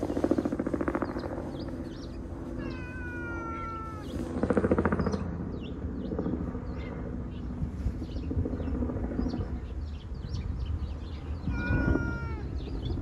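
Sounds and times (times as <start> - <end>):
cat meowing: 2.6 - 4.2, 11.4 - 12.8.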